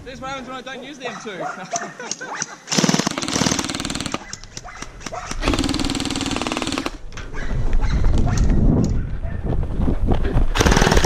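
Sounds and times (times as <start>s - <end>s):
gel blaster firing full auto: 10.6s - 11.0s.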